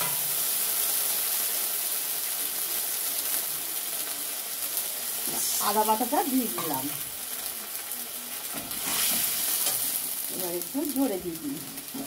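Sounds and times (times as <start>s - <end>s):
paste sizzling in hot oil: 0.0s - 12.0s.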